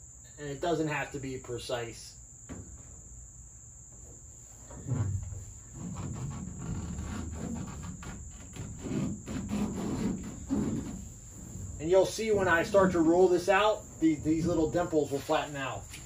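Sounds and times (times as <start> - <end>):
high insect trill: 0.0 - 16.0
foil sheet crinkling and rubbing: 5.8 - 11.1.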